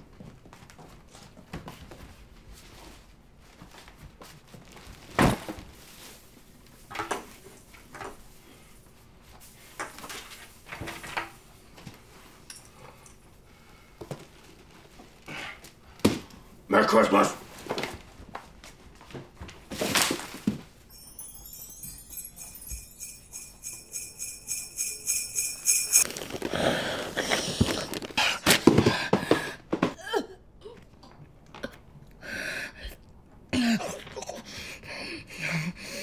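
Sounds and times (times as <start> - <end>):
sleigh bells jingling: 20.9 - 26.7.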